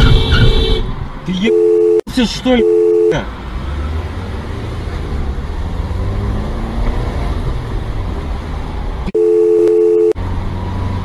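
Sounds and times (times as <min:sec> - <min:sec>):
car road and engine rumble: 0:00.0 - 0:11.0
two-note electronic beep: 0:01.4 - 0:03.2.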